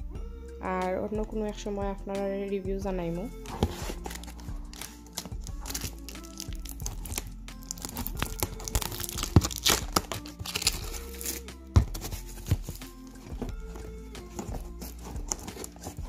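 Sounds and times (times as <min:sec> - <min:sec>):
cardboard tearing and crinkling: 0:03.5 - 0:16.0.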